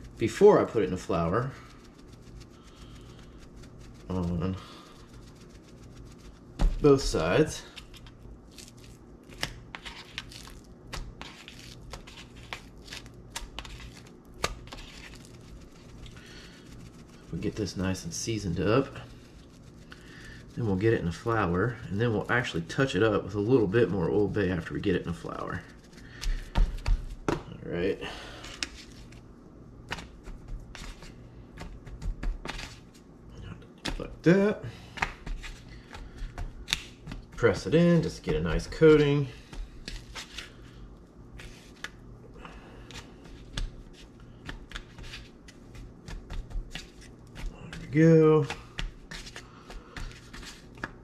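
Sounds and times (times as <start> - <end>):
hands rubbing raw fish: 0.0 - 21.5
hands tapping and rustling: 29.8 - 32.8, 42.9 - 51.0.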